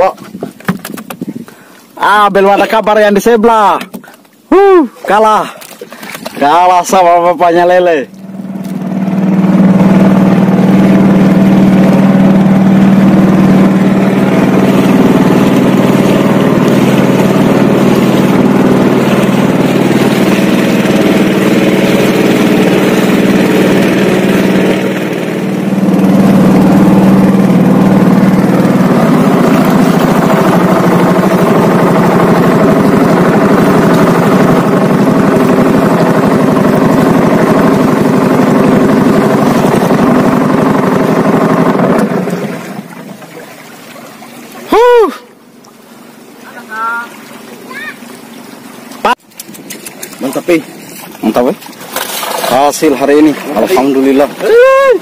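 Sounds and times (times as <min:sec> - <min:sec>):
boat motor running: 0:00.0 - 0:55.0.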